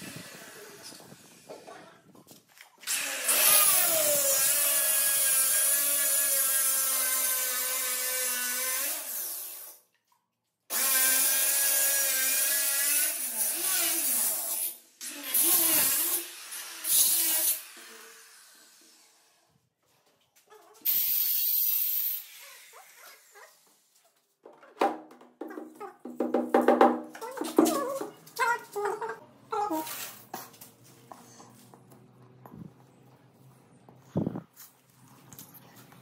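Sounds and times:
stone cutter whining and grinding: 3.0s - 9.6s.

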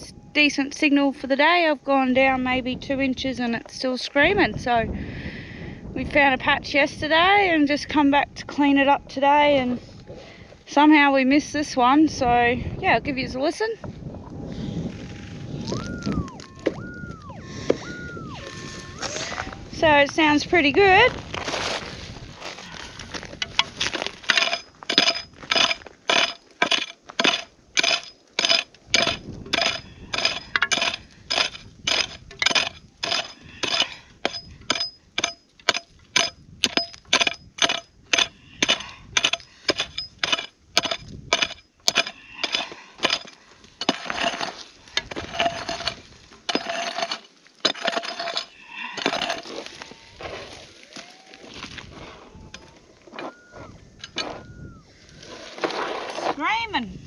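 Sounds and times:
pick scraping in dirt: 18.4s - 56.8s
pick striking stony ground: 19.8s - 53.4s.

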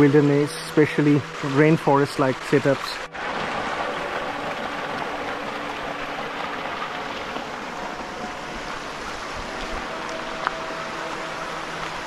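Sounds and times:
stream splashing over rocks: 0.0s - 12.0s.

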